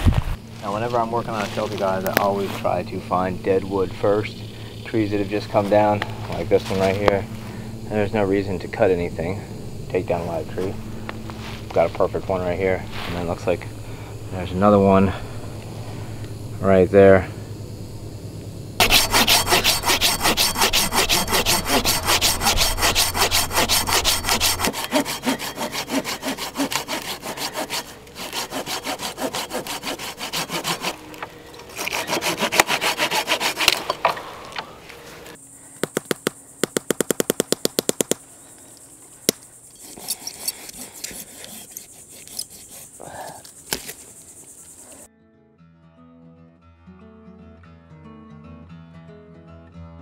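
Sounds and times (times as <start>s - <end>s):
hand saw cutting wood: 18.8s - 34.1s, 39.8s - 44.5s.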